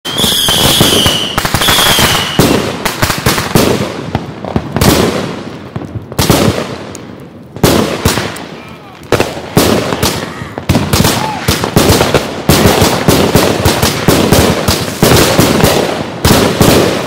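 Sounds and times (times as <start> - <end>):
firework whistle: 0.0 - 2.6
firework bangs: 0.0 - 17.0
fireworks crackling: 0.0 - 17.0.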